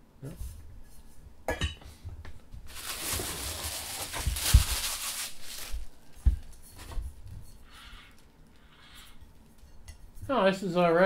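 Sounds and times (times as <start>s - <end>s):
paper wrapping rustling: 2.7s - 7.0s.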